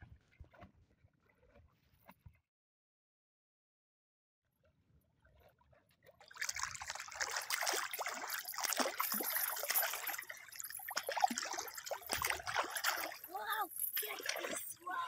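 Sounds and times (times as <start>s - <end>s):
chain dragged through water: 5.0s - 15.0s
fish thrashing and splashing water: 6.1s - 15.0s
water streaming off chain: 6.2s - 15.0s.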